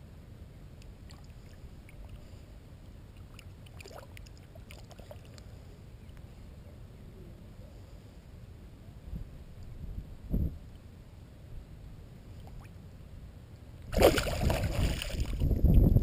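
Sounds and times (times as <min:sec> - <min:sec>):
steady low rumble: 0:00.0 - 0:16.0
fish splashing in shallow water: 0:03.1 - 0:05.5, 0:13.9 - 0:15.6.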